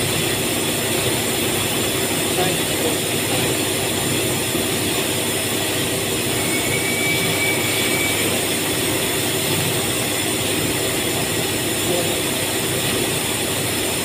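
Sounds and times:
faint high whistle: 0:06.4 - 0:08.5.

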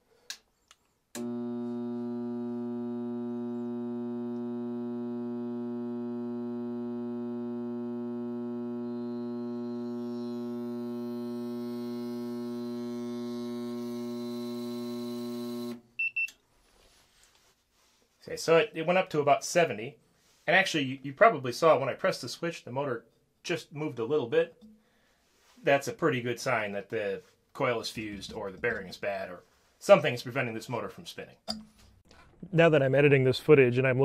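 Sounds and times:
clicks: 0:00.2 - 0:01.3
stalled motor buzzing: 0:01.2 - 0:15.8.

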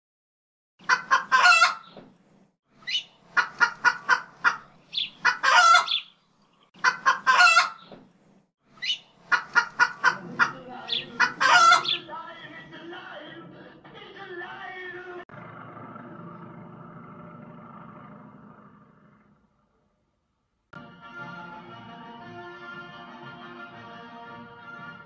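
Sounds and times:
chicken clucking and squawking: 0:00.8 - 0:02.0, 0:02.8 - 0:06.1, 0:06.8 - 0:08.0, 0:08.8 - 0:12.1.

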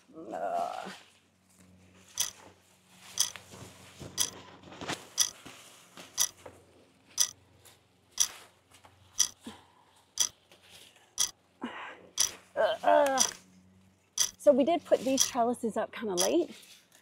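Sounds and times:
clock ticking: 0:03.2 - 0:03.4, 0:15.1 - 0:15.3.

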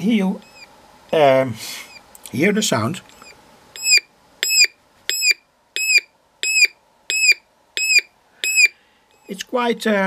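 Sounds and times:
electronic siren beeping chirps: 0:03.2 - 0:09.3.

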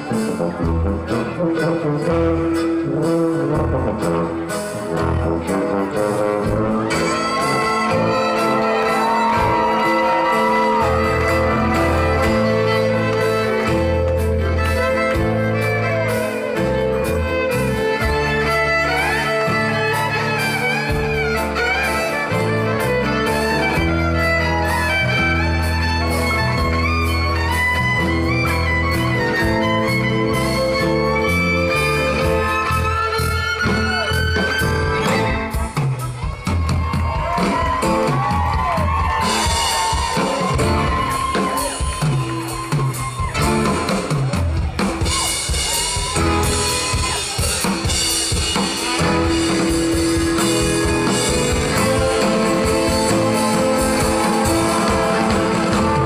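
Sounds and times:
tuba bass line: 0:00.0 - 0:09.5
drum kit: 0:00.0 - 0:56.0
fiddle melody: 0:00.0 - 0:56.0.

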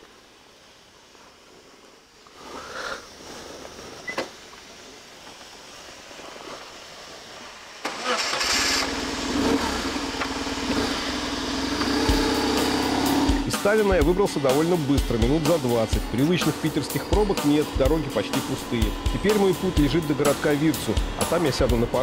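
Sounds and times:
motorcycle starter cranking: 0:07.8 - 0:13.5
motorcycle engine idling: 0:08.8 - 0:22.0.

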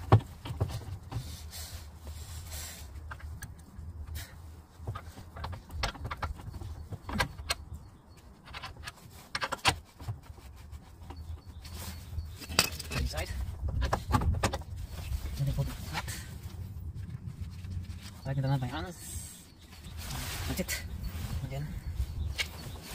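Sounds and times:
metallic knocks and clinks: 0:12.2 - 0:14.7
steady low rumble: 0:12.3 - 0:22.9.

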